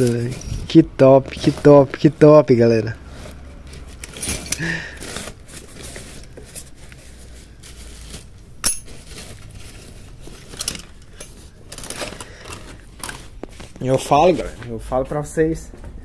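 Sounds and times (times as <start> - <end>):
cardboard rustling: 0.0 - 14.8
metal buckles clinking: 3.7 - 4.7, 8.6 - 9.3, 10.3 - 13.2.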